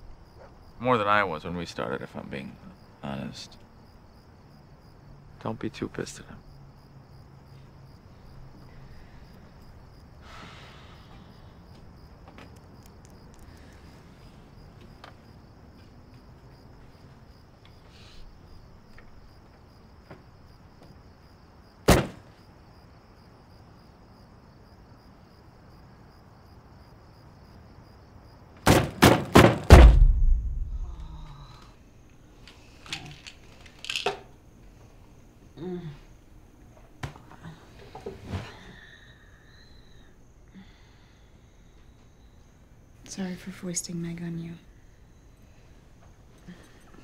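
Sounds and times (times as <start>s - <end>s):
crickets chirping: 0.0s - 47.0s
sharp knock: 28.7s - 31.0s
loud booming thuds: 28.7s - 31.3s.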